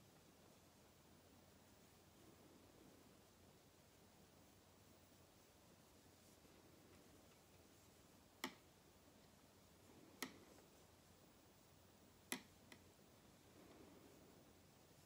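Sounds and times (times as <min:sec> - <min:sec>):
knitting needles clicking: 0:08.3 - 0:08.7, 0:09.9 - 0:10.7, 0:12.1 - 0:13.9.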